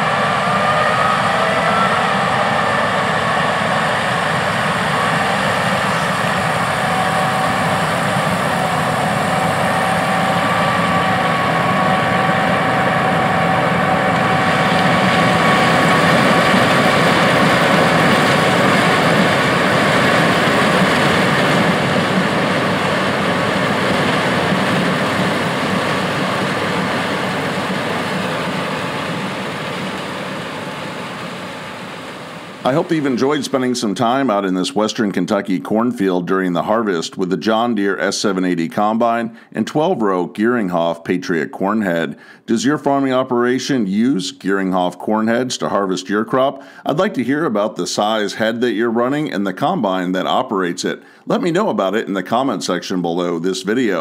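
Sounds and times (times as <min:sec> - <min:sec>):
combine harvester running: 0:00.0 - 0:34.4
faint steady whine: 0:00.0 - 0:40.1.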